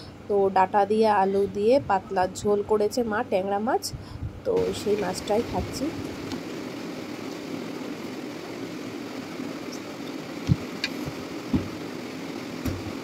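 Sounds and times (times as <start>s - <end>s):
steady mechanical hum: 0.0s - 13.0s
low thumps: 10.4s - 11.9s.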